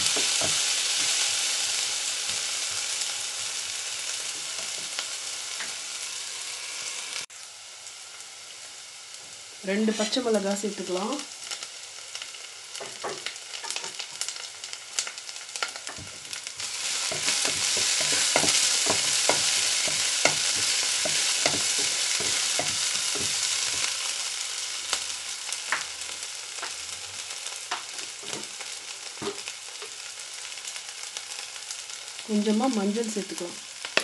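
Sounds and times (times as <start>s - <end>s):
onions sizzling in oil: 0.0s - 34.0s
wooden spatula scraping a pan: 15.9s - 24.0s.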